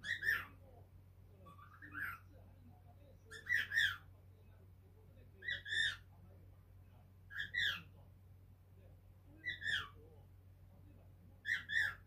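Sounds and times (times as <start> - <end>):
cockatiel chirping: 0.0 - 0.6, 1.4 - 2.3, 3.3 - 4.0, 5.4 - 6.0, 7.3 - 7.9, 9.4 - 10.0, 11.4 - 12.0
faint steady hum: 0.0 - 12.0.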